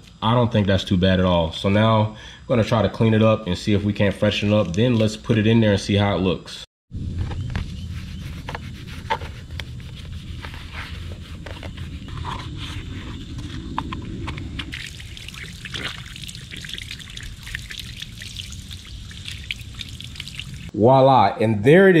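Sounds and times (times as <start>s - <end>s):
low rumble: 6.9s - 15.1s
soapy rag scrubbing plastic: 7.9s - 13.5s, 14.7s - 20.7s
hose water splashing: 14.7s - 20.7s.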